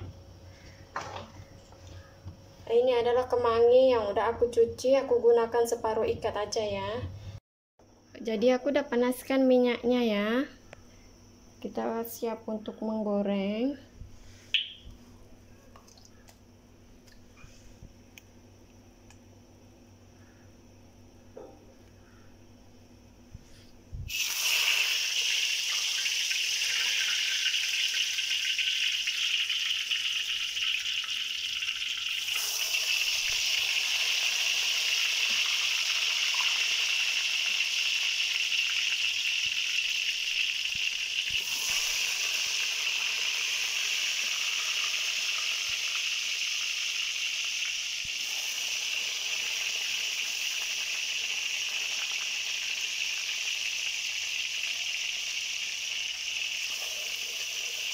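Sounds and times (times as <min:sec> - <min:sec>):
food sizzling in frying oil: 0:24.1 - 0:57.9.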